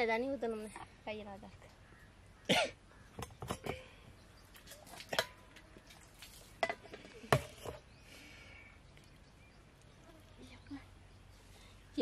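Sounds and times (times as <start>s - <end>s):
metal tumblers and plates clinking: 3.2s - 3.9s, 4.6s - 5.6s, 6.6s - 7.8s.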